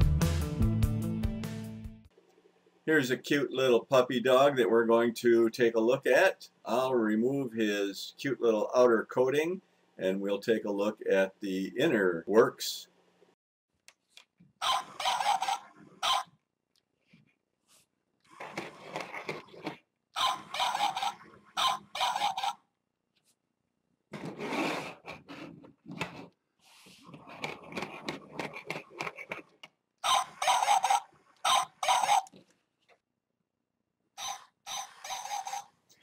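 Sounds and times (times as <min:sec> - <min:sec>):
electronic toy dog barking: 0:14.6 - 0:16.4, 0:20.2 - 0:22.7, 0:30.0 - 0:32.4, 0:34.2 - 0:35.8
plastic legs scraping on table: 0:18.3 - 0:19.8, 0:24.1 - 0:29.5.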